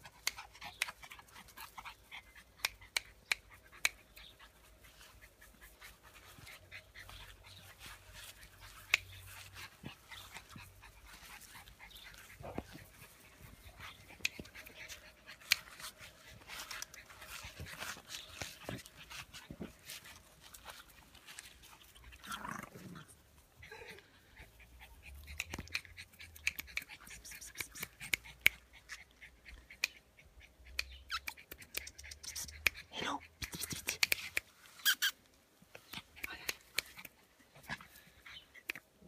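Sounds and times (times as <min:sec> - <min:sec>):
dogs panting: 0:00.0 - 0:34.5.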